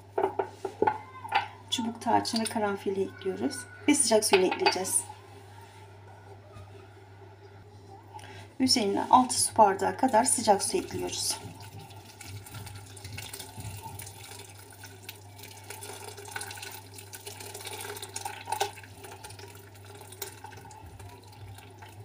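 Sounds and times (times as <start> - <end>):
hot water pouring into bowl: 9.2 - 22.0.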